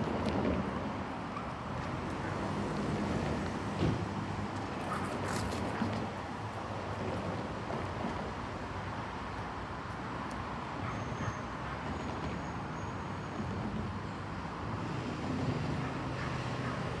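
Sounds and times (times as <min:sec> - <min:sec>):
distant train rumble: 0:05.6 - 0:17.0.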